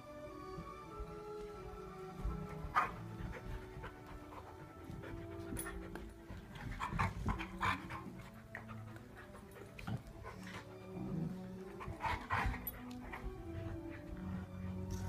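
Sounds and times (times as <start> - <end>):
dogs panting: 0.3 - 15.0
dogs scuffling and snapping: 0.6 - 10.9.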